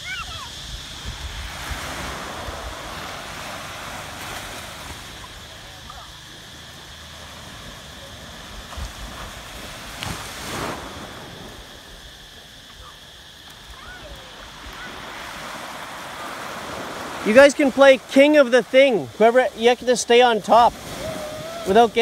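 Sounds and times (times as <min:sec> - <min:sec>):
faint children's voices: 0:00.0 - 0:01.2, 0:05.1 - 0:06.5, 0:12.4 - 0:15.6
wind on microphone: 0:00.0 - 0:06.2, 0:07.2 - 0:17.3, 0:20.6 - 0:22.0
small waves breaking on shore: 0:00.0 - 0:22.0.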